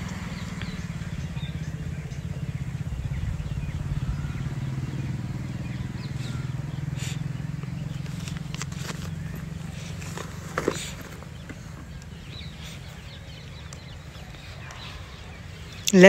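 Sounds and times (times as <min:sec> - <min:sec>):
engine droning: 0:00.0 - 0:16.0
camera bag clicks and rustles: 0:08.0 - 0:12.7.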